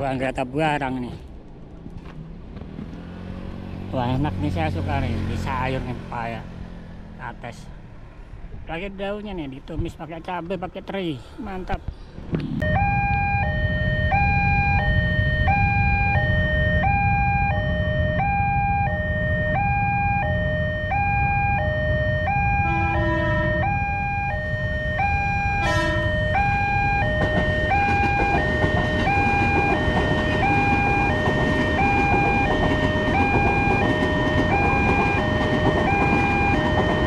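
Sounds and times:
electric train passing: 12.6 - 37.0
two-tone crossing alarm: 12.6 - 37.0.

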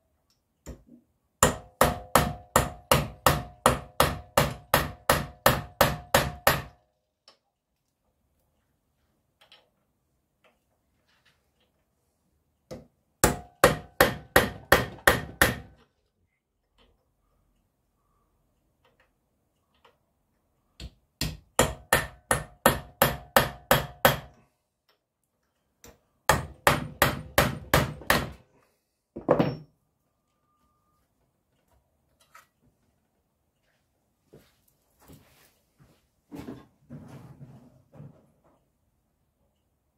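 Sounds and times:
hammer striking metal punch: 1.4 - 6.8, 13.2 - 15.8, 20.8 - 24.4, 26.3 - 28.4.

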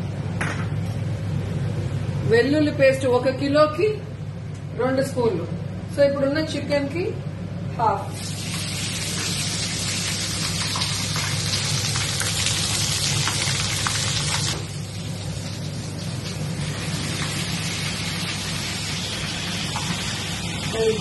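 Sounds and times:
steady low hum: 0.0 - 12.0
paste sizzling in hot oil: 8.1 - 15.2.

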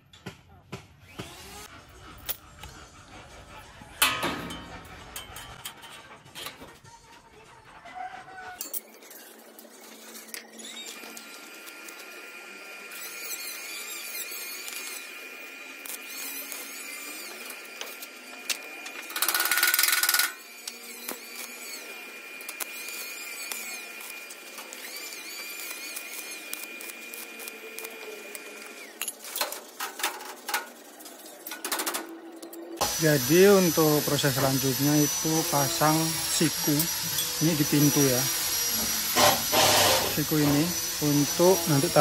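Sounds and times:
power drill running: 1.1 - 1.7, 9.9 - 29.3, 32.8 - 42.0.

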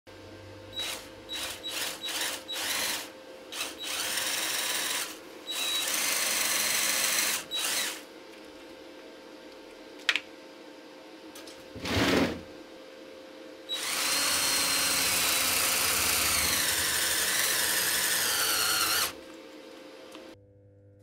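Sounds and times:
power drill boring into metal: 0.8 - 8.0, 13.7 - 19.2.

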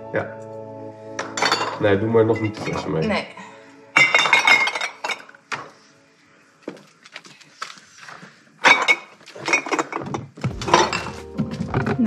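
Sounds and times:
glass jars clinking: 1.2 - 2.9, 4.0 - 5.6, 8.6 - 11.2.

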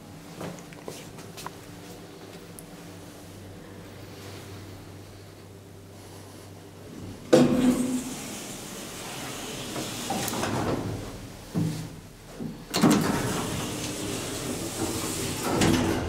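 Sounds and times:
sliding elevator door running: 6.9 - 16.0
elevator door clunking: 7.3 - 11.8, 12.5 - 16.0.

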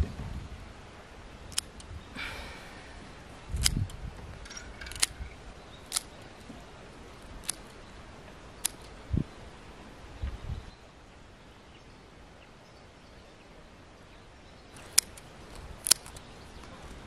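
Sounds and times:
stems rustling: 1.2 - 10.2, 14.7 - 17.0
scissors snipping stems: 1.5 - 1.9, 3.6 - 4.0, 5.9 - 6.2, 7.2 - 7.7, 8.6 - 8.9, 14.8 - 16.3.

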